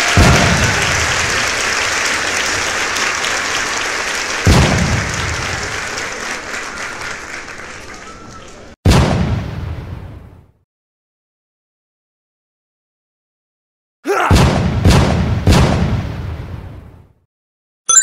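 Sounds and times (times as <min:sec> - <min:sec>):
applause: 0:00.0 - 0:08.8.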